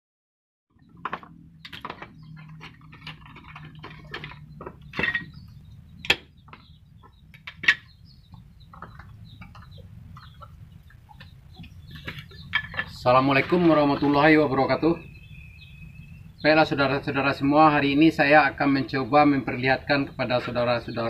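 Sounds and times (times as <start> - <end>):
chicken clucking: 7.8 - 14.3.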